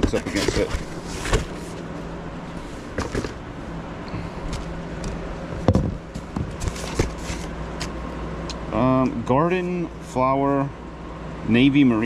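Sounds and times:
cardboard boxes knocking and rustling: 0.0 - 1.8, 3.0 - 3.4, 5.6 - 7.5.

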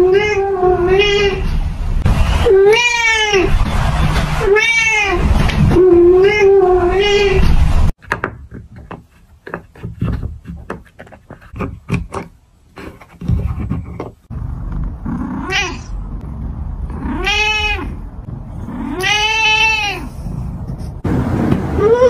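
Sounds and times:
cat meowing: 0.0 - 1.5, 2.5 - 3.5, 4.4 - 5.2, 5.8 - 7.5, 15.4 - 15.9, 17.0 - 18.0, 18.7 - 20.1.

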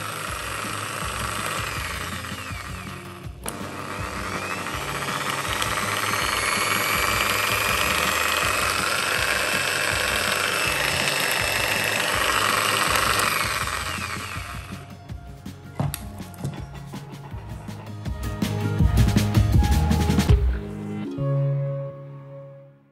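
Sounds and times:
jigsaw motor running: 0.0 - 15.0.

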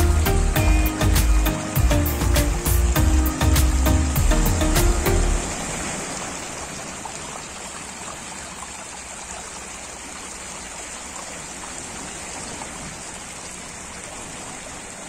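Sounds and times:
waves washing over pebbles: 5.4 - 8.3.

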